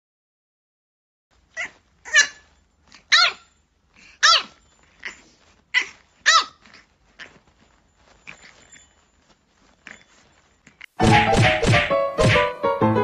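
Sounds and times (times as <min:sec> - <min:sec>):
small dog yapping: 0:01.5 - 0:07.4.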